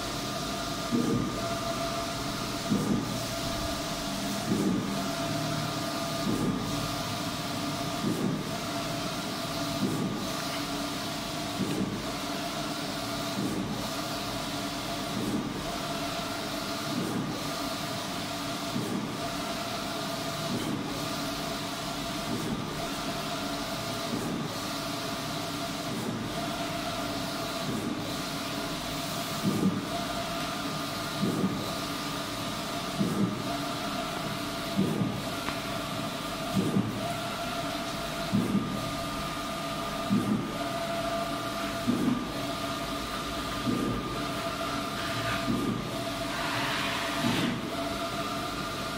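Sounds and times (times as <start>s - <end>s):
inkjet printer carriage sweeping: 44.7s - 48.2s.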